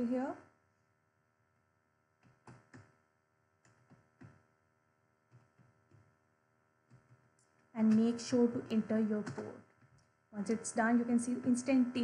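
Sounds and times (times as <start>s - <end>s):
computer keyboard keystrokes: 2.2s - 3.0s, 3.6s - 4.4s, 5.3s - 6.1s, 6.9s - 10.1s.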